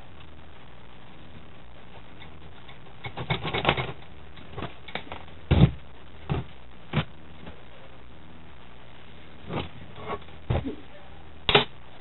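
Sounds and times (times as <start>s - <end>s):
knocks and heavy thud: 5.5s - 7.1s.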